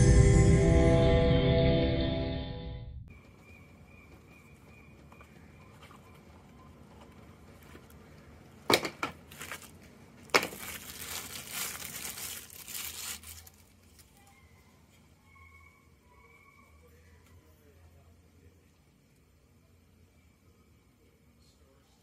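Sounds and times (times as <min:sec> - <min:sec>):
plastic wrap crinkling: 0:09.1 - 0:14.4.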